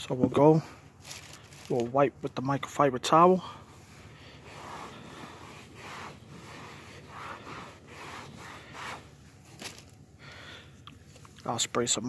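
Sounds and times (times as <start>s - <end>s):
towel rubbing on seat: 3.6s - 10.0s.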